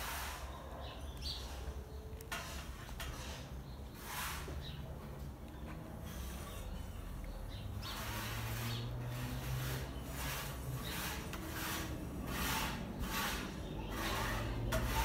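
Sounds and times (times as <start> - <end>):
wheel rasping swish: 7.8 - 15.0.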